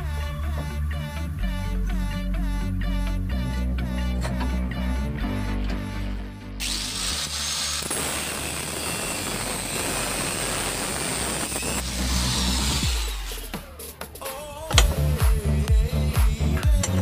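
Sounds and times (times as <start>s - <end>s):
background music: 0.0s - 6.8s, 11.9s - 17.0s
angle grinder cutting steel: 6.6s - 13.7s.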